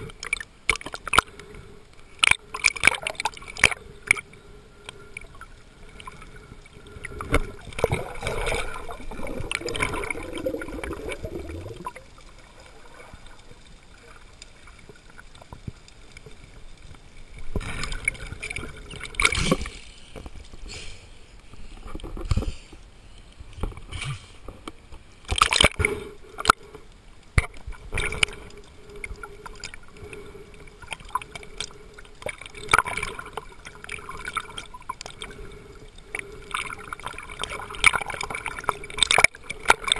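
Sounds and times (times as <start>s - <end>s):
seawater sloshing and splashing: 7.2s - 13.6s, 36.5s - 39.9s.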